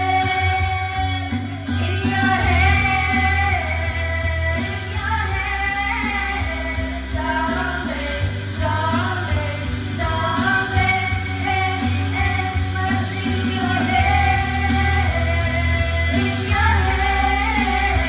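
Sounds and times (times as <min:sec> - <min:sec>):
music backing track with bass: 0:00.0 - 0:18.0
women singing karaoke: 0:00.0 - 0:18.0.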